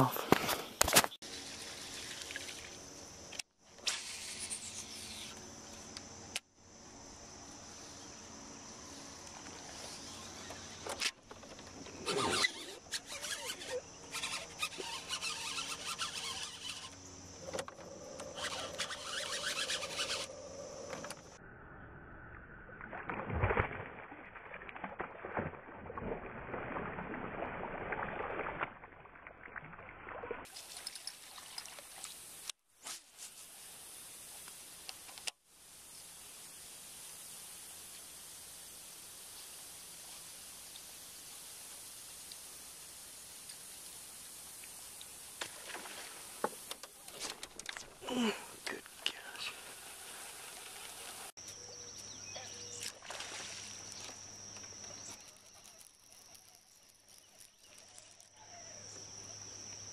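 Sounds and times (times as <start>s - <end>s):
insects droning: 0.0s - 23.0s, 33.2s - 59.9s
water churning splashes: 52.9s - 54.1s.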